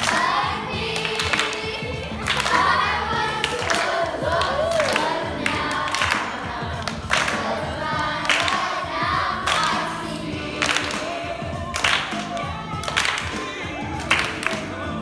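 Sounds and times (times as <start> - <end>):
children singing: 0.0 - 15.0
hand claps: 1.0 - 2.7, 5.9 - 7.5, 8.2 - 8.7, 10.6 - 11.1, 11.8 - 14.9.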